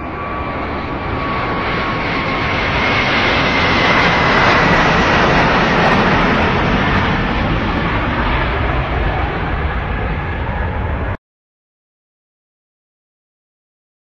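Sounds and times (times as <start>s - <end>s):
high jet engine whine: 0.0s - 11.2s
jet passing overhead: 0.0s - 11.2s.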